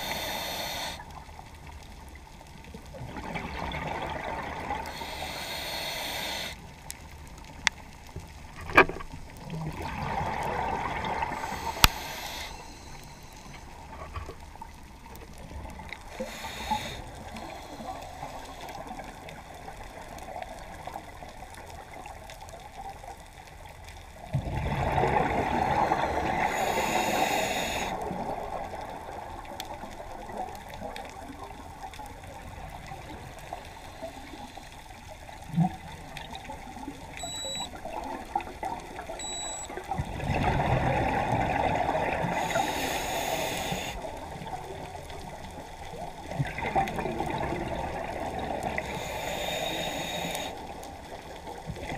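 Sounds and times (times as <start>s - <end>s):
bubbling hiss: 0.0s - 1.4s, 3.0s - 6.7s, 9.7s - 14.7s, 15.4s - 21.3s, 24.3s - 30.3s, 31.6s - 51.9s
rush of exhaled bubbles: 2.9s - 5.0s, 9.4s - 12.8s, 24.3s - 27.2s, 39.9s - 45.0s, 46.0s - 49.2s.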